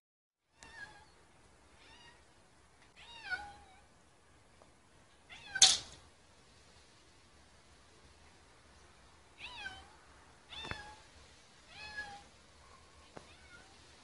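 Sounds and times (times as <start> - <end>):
cat meowing: 0.6 - 1.2, 1.8 - 2.2, 3.0 - 3.8, 5.3 - 5.8, 9.4 - 9.9, 10.5 - 11.1, 11.7 - 12.3, 13.2 - 13.8.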